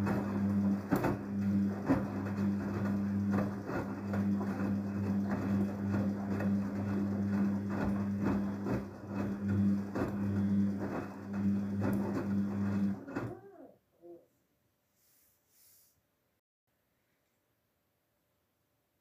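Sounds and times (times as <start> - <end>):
laundry sloshing and thudding: 0.0 - 13.4
washing machine motor hum: 0.0 - 13.7.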